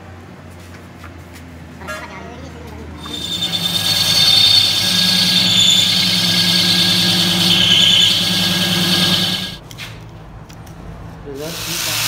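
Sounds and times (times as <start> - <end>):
lathe motor humming: 3.0 - 9.6
lathe tool squealing: 3.0 - 9.6.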